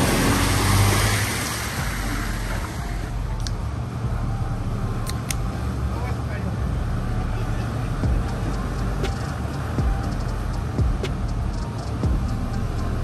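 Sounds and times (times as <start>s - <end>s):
water churning and splashing: 0.0s - 3.2s
river water rushing: 0.0s - 4.1s
car engine running: 0.0s - 13.0s.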